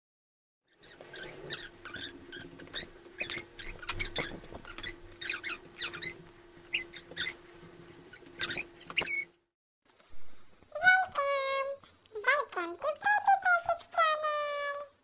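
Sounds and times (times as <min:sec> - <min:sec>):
high chirpy squeaks: 0:00.7 - 0:07.4, 0:08.1 - 0:09.4.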